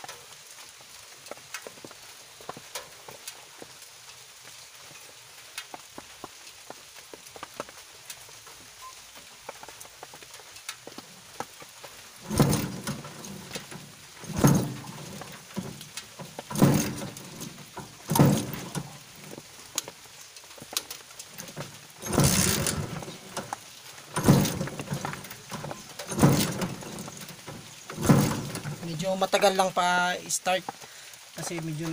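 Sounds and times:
motorcycle engine cranking: 12.2 - 19.4, 21.3 - 29.0.

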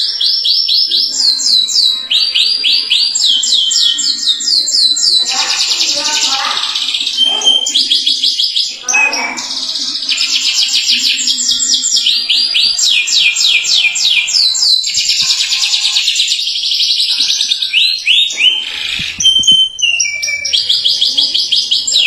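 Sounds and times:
canary singing trills: 0.0 - 22.0.

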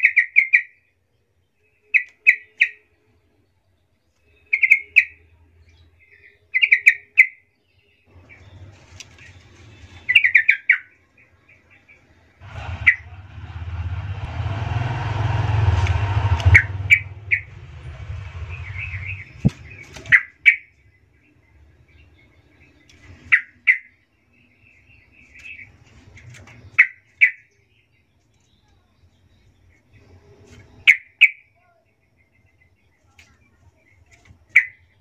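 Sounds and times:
low rumbling noise: 12.4 - 20.3.

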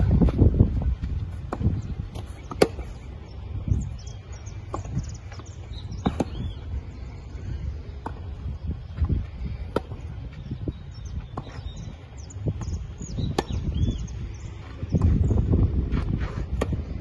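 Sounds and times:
tennis balls struck by rackets: 1.0 - 3.4, 4.5 - 6.7, 7.8 - 8.4, 9.0 - 10.4, 11.3 - 13.9, 16.3 - 17.0.

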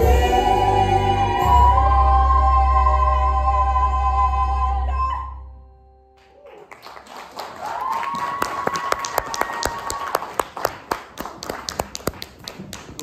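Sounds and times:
musical accompaniment: 0.0 - 6.4
high held cheer: 6.2 - 10.7
audience applause: 6.2 - 13.0.

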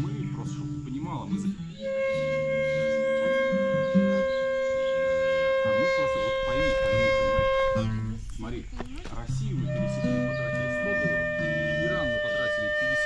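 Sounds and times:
bamboo flute long note: 1.5 - 8.2, 9.5 - 13.0.

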